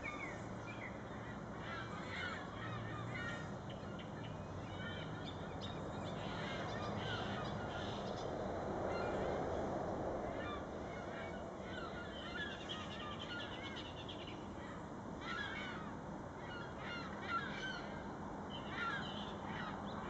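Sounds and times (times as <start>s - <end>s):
gulls calling: 0.0s - 9.6s, 10.2s - 20.0s.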